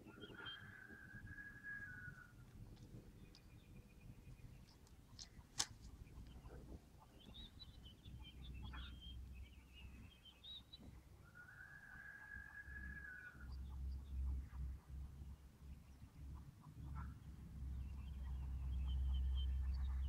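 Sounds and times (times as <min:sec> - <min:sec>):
songbird twittering: 0:00.0 - 0:14.1.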